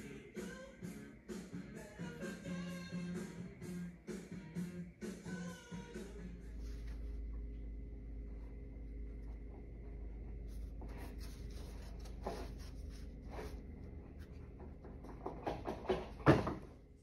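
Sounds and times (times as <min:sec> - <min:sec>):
steady low hum: 0:00.0 - 0:17.0
hand rubbing on hollow wood: 0:08.8 - 0:15.0.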